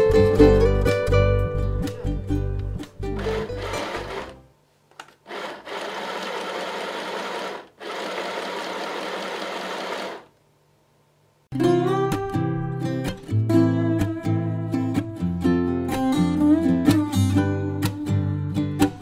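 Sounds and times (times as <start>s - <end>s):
background music: 0.0s - 4.5s, 11.5s - 19.0s
sewing machine stitching: 3.2s - 4.4s, 5.2s - 10.3s.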